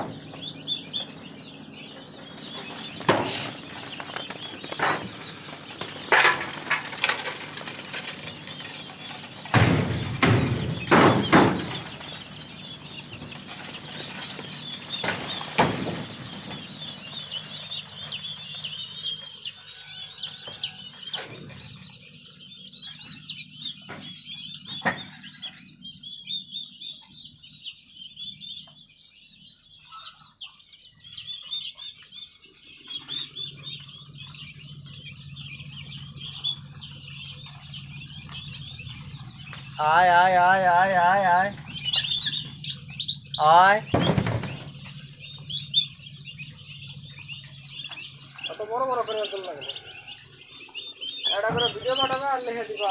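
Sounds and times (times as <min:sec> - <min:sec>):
chicks peeping: 0:00.0 - 0:52.9
loud knocks: 0:02.0 - 0:18.6, 0:43.7 - 0:45.5.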